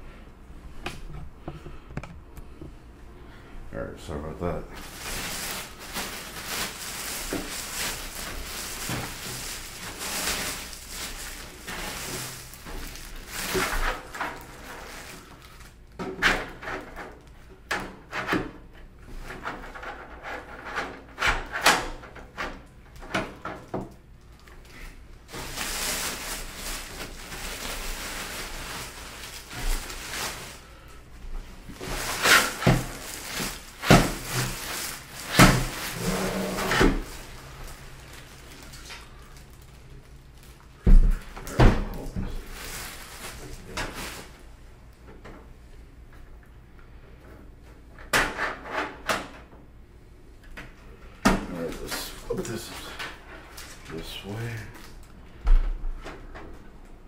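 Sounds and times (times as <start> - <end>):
plastic bag crinkling: 4.7 - 16.0, 24.2 - 41.4, 42.0 - 44.5.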